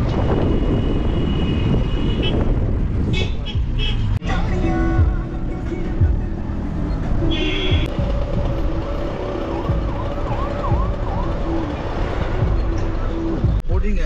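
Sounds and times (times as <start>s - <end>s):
car cabin road and engine noise: 0.0s - 14.0s
warbling siren wail: 8.0s - 13.3s.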